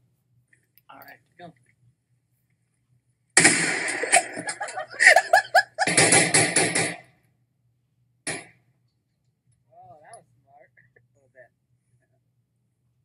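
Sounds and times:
gunshots: 3.4s - 7.1s, 8.3s - 8.6s
person laughing: 4.0s - 6.0s.

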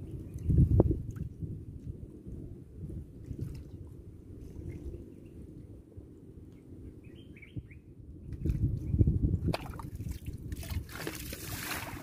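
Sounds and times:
bird chirps: 7.0s - 7.9s
water splashing and dripping: 9.4s - 12.0s.

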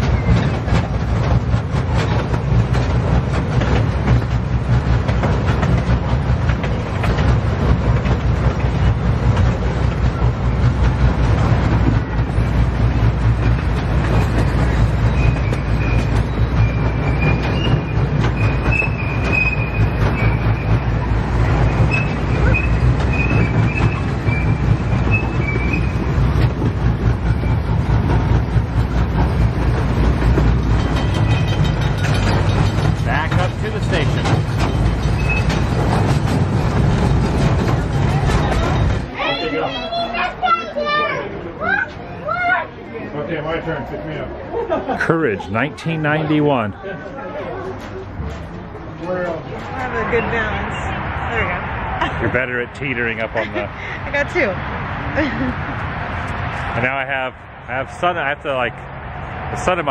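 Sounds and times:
clicks over rail joints: 0.0s - 39.1s
wheels squealing on rails: 0.0s - 44.3s, 45.0s - 59.9s
train wheels rumbling: 0.0s - 59.9s.

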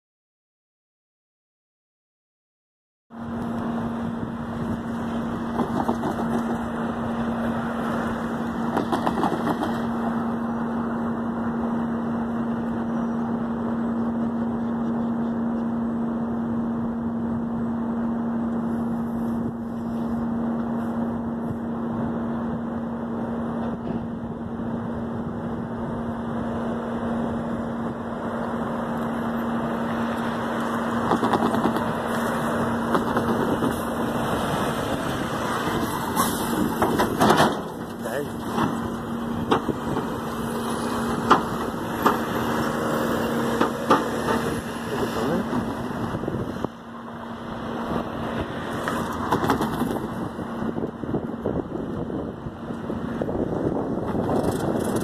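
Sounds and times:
engine humming: 3.1s - 55.0s
rushing noise: 16.3s - 55.0s.

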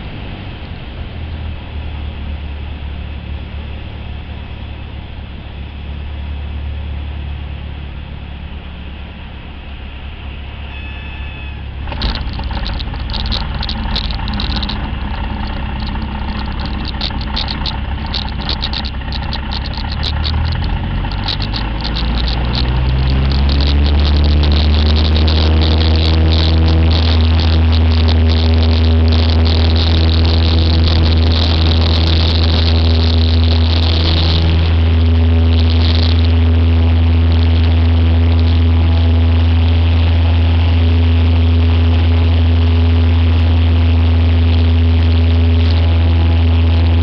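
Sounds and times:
aircraft piston engine: 1.8s - 41.6s
rushing noise with crackles: 11.7s - 47.0s.

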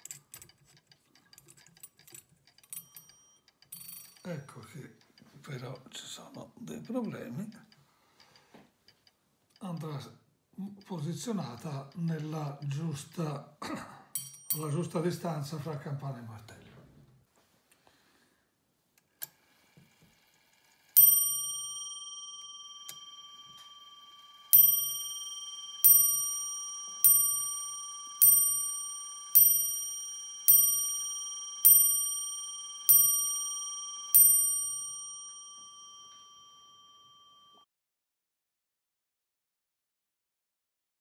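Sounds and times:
small clock clicks: 0.0s - 10.1s, 10.8s - 13.2s
clock hammer striking bell: 14.2s - 14.9s, 21.0s - 37.6s.

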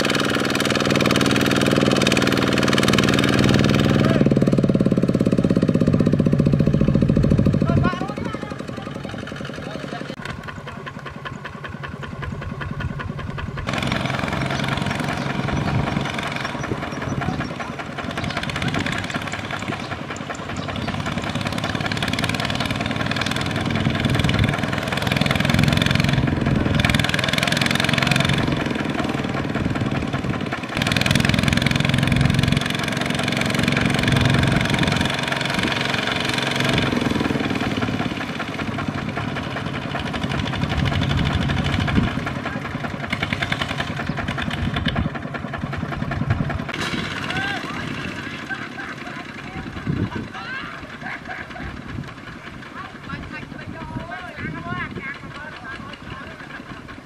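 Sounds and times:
diesel tractor engines under load: 0.0s - 57.0s.

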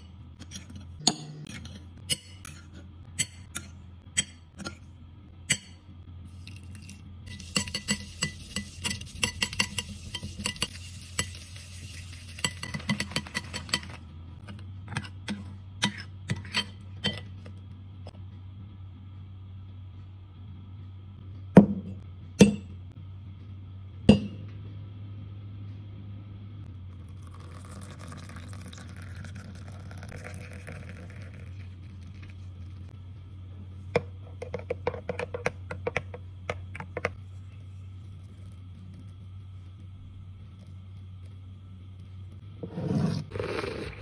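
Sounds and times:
milk pouring into mug: 27.0s - 32.8s.

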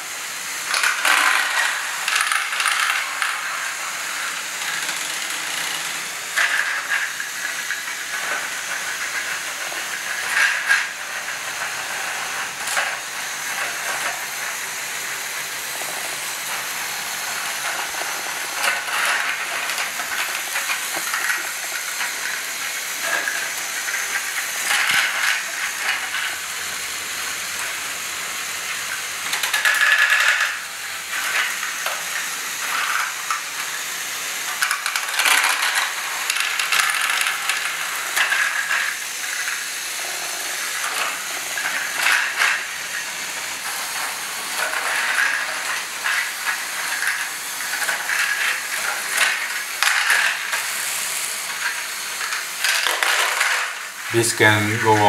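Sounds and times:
electric motors and gears whirring: 0.0s - 54.1s
plastic balls clattering: 17.4s - 26.4s, 34.6s - 39.7s, 51.5s - 55.0s.

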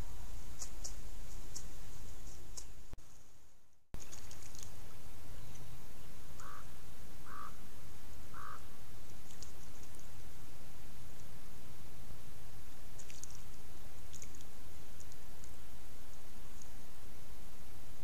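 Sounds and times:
outdoor background hiss: 0.0s - 18.0s
short bird calls: 5.3s - 7.6s, 8.3s - 8.7s.

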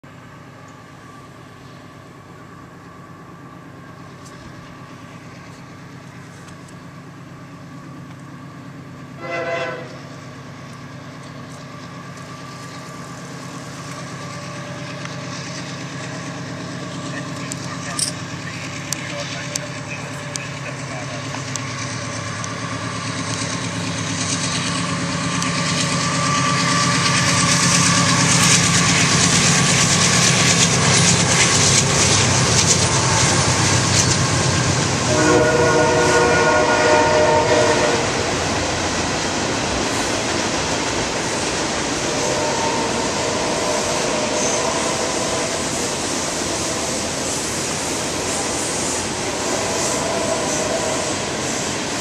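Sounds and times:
locomotive engines rumbling: 0.1s - 52.0s
multi-note train air horn: 9.2s - 10.0s, 35.1s - 38.2s, 42.1s - 45.6s, 49.3s - 51.4s.

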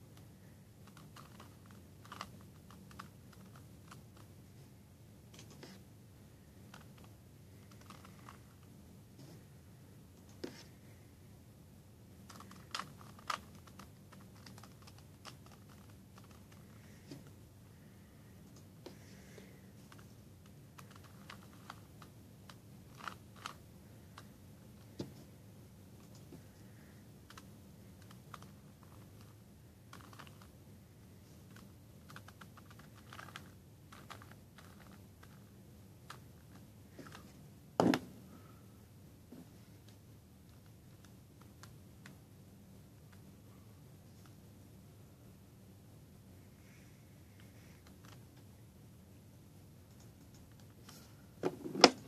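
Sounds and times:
puzzle cube layers clicking: 0.8s - 4.3s, 12.2s - 16.7s, 29.9s - 30.5s, 31.5s - 35.5s.

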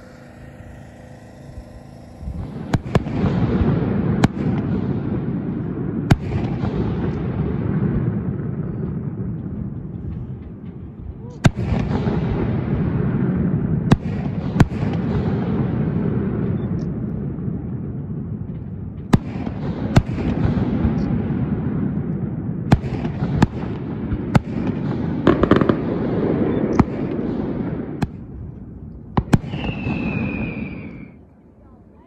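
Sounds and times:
fireworks crackling: 0.0s - 8.3s, 17.2s - 31.5s
rumble of echoing booms: 1.6s - 31.2s
fireworks bangs: 2.3s - 31.3s.

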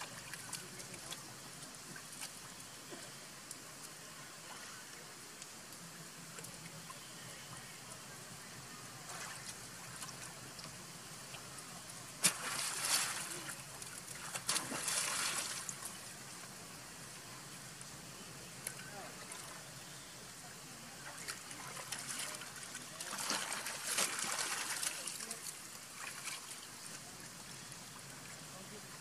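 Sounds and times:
monkeys splashing in water: 12.2s - 16.1s, 21.0s - 27.0s.

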